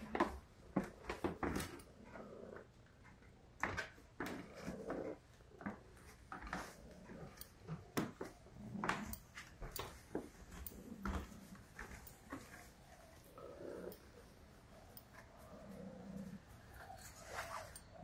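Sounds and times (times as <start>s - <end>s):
footsteps on wooden floor: 7.8s - 12.8s.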